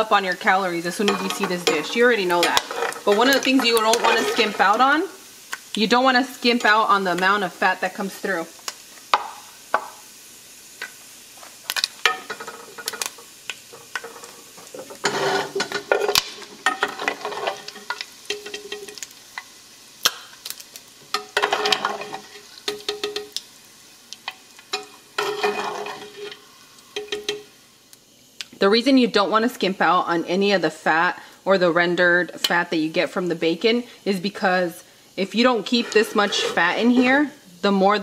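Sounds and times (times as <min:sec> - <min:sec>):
meat frying in fat: 0:00.0 - 0:38.0
utensil scraping and clicking on pot: 0:01.0 - 0:04.8, 0:12.3 - 0:20.2, 0:24.2 - 0:27.4, 0:35.7 - 0:37.1.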